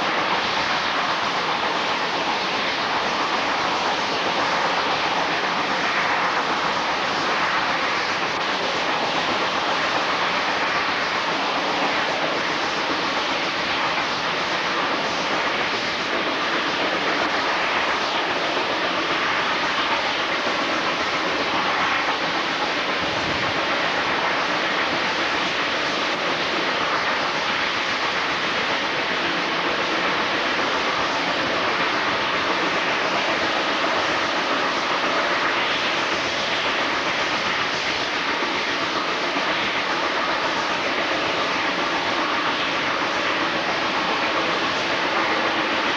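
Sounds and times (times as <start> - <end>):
train running on track: 0.0 - 45.9.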